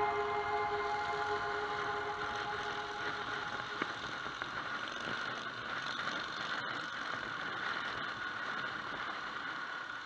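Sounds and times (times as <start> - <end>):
road noise: 0.0 - 5.6.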